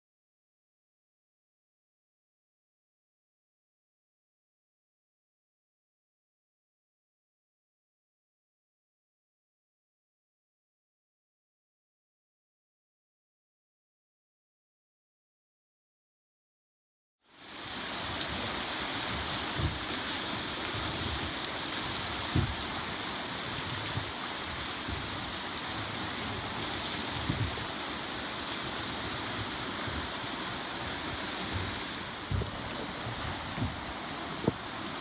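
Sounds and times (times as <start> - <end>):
river water rushing: 17.3 - 35.0
low thumps: 30.9 - 34.7.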